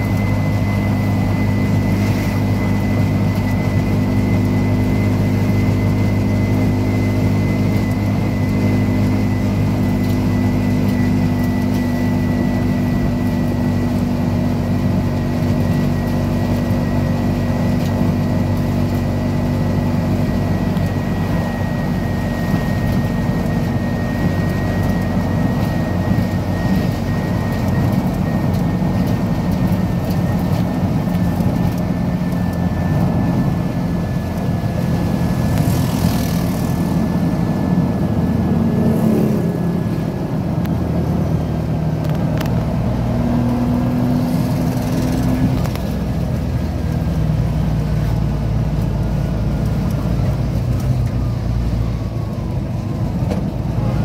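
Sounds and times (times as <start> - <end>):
faint high whine: 0.0 - 41.4
road and tyre noise: 0.0 - 54.0
vehicle engine running: 0.0 - 54.0.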